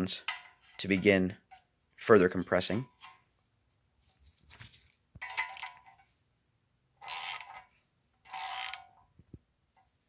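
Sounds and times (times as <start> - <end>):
ratchet clicking: 5.2 - 5.8, 7.0 - 7.6, 8.2 - 9.0.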